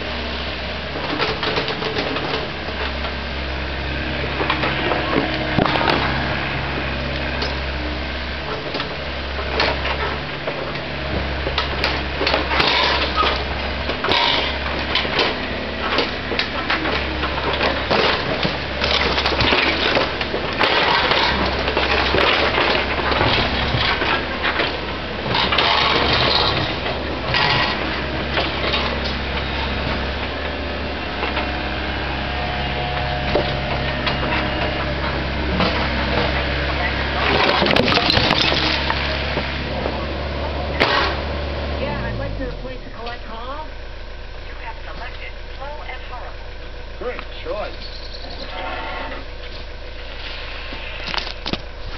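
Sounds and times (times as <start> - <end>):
excavator diesel engine running: 0.0 - 51.9
rubble clattering and scraping: 8.4 - 41.3.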